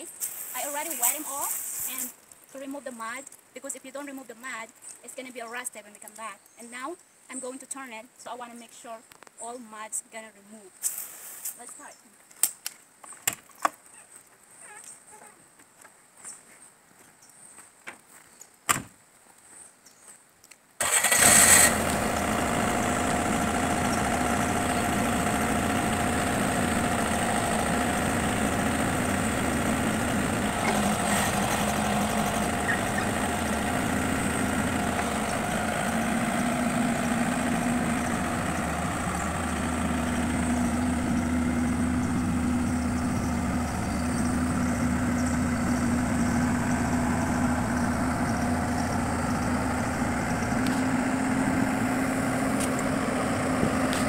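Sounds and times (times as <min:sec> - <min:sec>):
diesel engine starting and running: 0:20.8 - 0:54.0.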